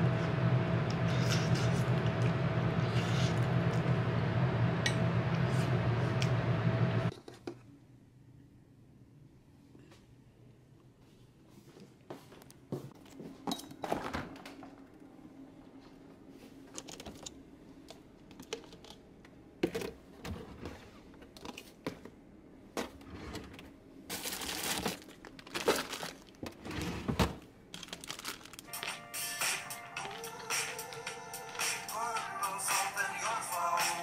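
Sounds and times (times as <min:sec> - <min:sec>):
plastic bag crinkling: 0:24.1 - 0:26.6, 0:27.7 - 0:29.0.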